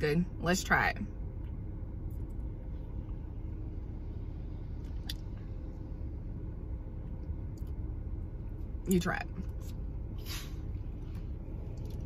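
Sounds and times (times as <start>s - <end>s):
low rumble inside car: 0.0s - 12.0s.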